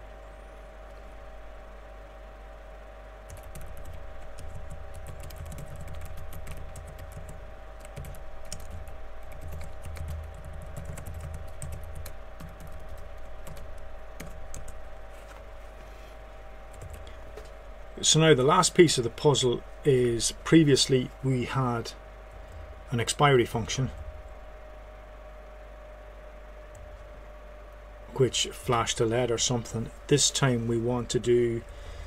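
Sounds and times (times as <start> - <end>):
faint hum: 0.0 - 32.0
computer keyboard typing: 3.3 - 14.8, 16.7 - 17.1.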